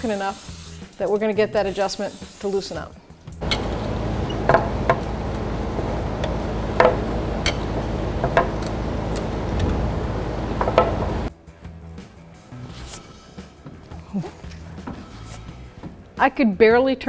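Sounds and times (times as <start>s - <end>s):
low hum: 3.4s - 11.3s.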